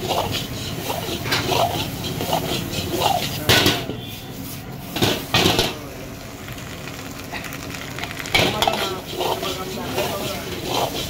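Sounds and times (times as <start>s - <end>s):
metal ladle scraping a wok: 0.0s - 5.8s, 8.3s - 11.0s
rice sizzling: 0.0s - 11.0s.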